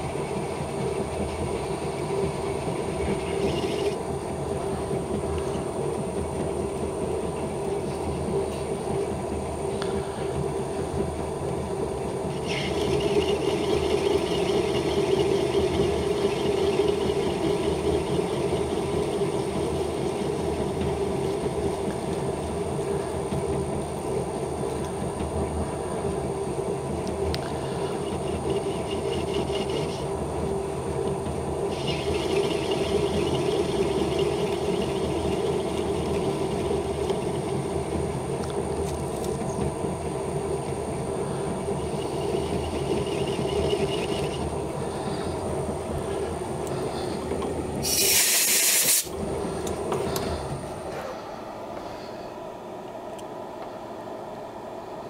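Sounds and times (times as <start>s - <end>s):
metal lathe running: 0.0s - 51.7s
high-pitched cutting hiss: 47.8s - 49.1s.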